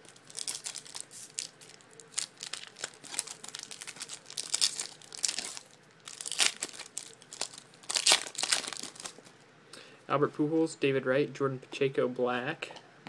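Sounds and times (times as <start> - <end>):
foil wrappers crinkling and tearing: 0.0 - 9.3.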